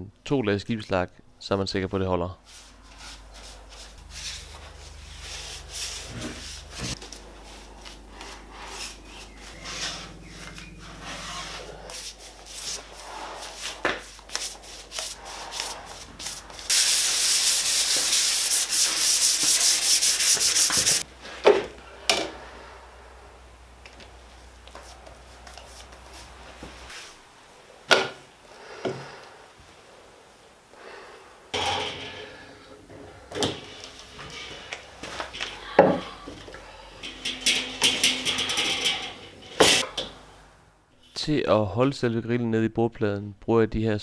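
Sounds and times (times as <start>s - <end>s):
paintbrush scraping on wood: 2.4s - 21.4s, 33.4s - 39.9s.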